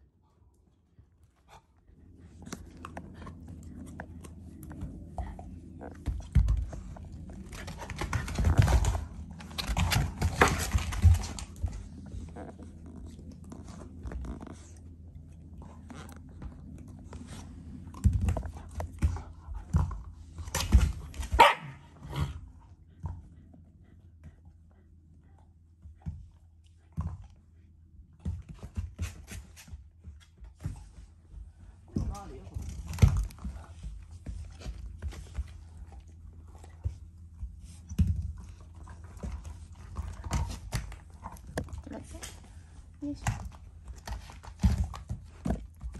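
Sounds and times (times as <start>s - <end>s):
dogs scuffling and snapping: 5.7s - 14.8s
dog barking: 21.4s - 21.8s.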